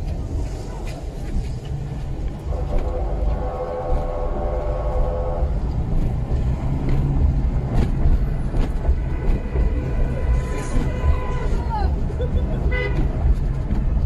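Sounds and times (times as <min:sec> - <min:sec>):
car engine and road rumble: 0:00.0 - 0:14.0
vehicle horn: 0:02.4 - 0:05.7, 0:09.1 - 0:11.8, 0:12.7 - 0:13.1.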